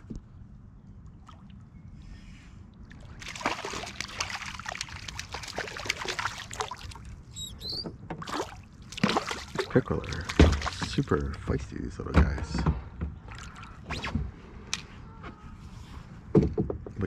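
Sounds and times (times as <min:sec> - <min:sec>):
fish thrashing and splashing: 0:03.1 - 0:07.3, 0:08.2 - 0:11.2.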